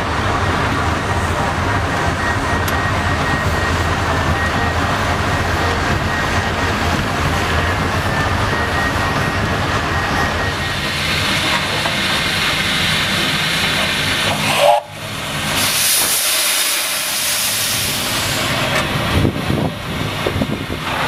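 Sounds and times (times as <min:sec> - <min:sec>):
steam locomotive moving slowly: 0:00.0 - 0:21.0
steam hissing: 0:10.6 - 0:18.8.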